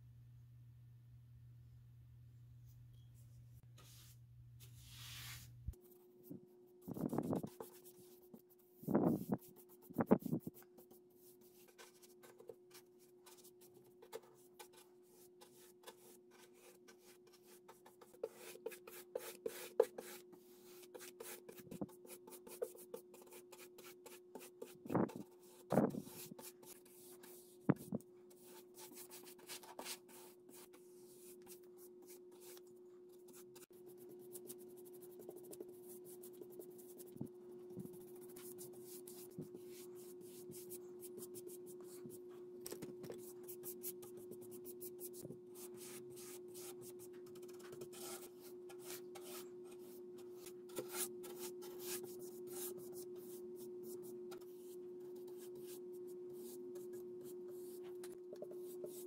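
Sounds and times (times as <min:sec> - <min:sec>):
faint hum: 0:00.0 - 0:07.9
paintbrush strokes on wood: 0:03.8 - 0:05.6.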